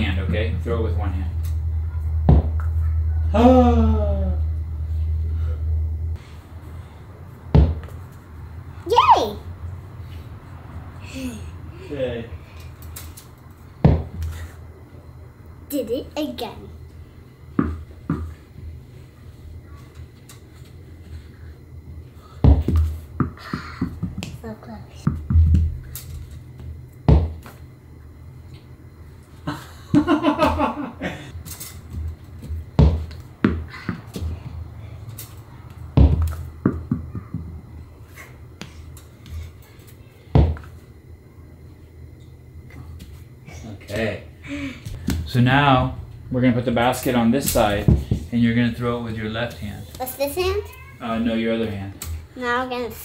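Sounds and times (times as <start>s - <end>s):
tennis balls thudding: 2.2s - 2.8s, 7.4s - 8.0s, 13.8s - 14.4s, 17.5s - 18.3s, 22.4s - 24.4s, 26.6s - 27.6s, 31.9s - 34.6s, 35.7s - 37.6s, 40.3s - 40.8s, 44.9s - 45.4s, 47.4s - 48.3s.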